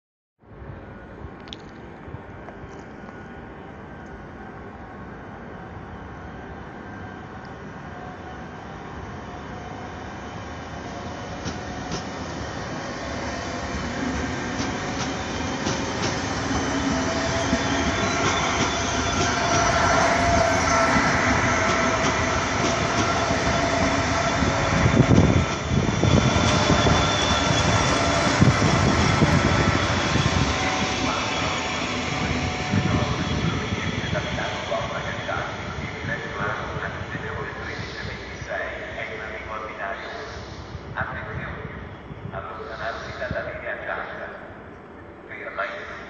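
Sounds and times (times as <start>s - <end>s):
train rolling past: 0.5s - 46.0s.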